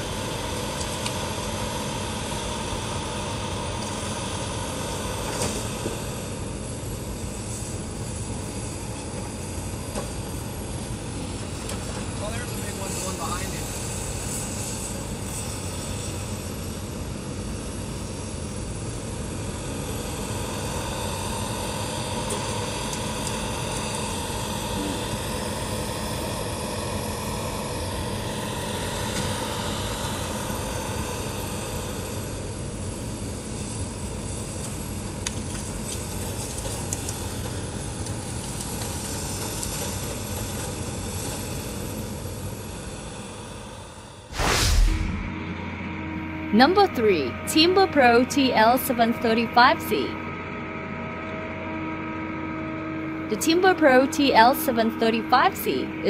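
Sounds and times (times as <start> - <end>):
diesel engine running: 44.4 - 56.0.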